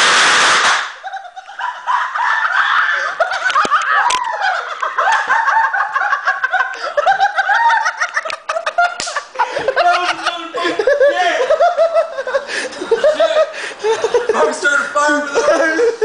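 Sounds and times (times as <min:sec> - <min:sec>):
firework hissing: 0:00.0 - 0:01.0
people laughing: 0:01.0 - 0:16.0.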